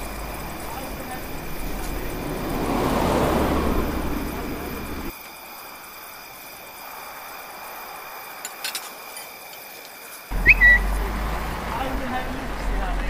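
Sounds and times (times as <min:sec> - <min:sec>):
steady background hiss: 0:04.0 - 0:10.3.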